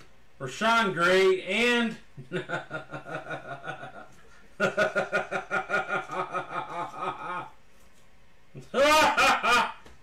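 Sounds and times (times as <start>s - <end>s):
man laughing: 2.2s - 7.6s, 8.6s - 9.9s.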